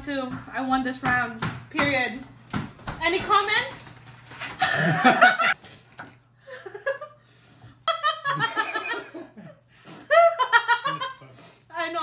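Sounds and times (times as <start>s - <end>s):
young women laughing: 4.6s - 5.6s, 7.9s - 9.4s, 10.1s - 11.1s.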